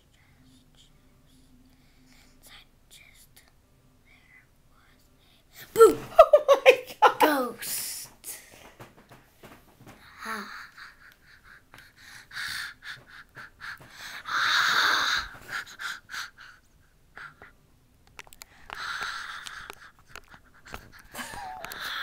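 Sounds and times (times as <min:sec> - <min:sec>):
child breathing heavily: 0:09.8 - 0:17.6, 0:18.4 - 0:22.0.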